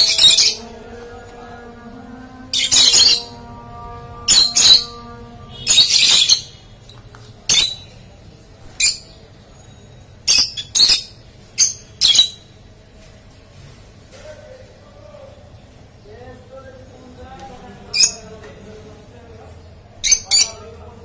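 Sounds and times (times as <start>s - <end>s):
lovebirds shrill calls: 4.3s - 6.6s.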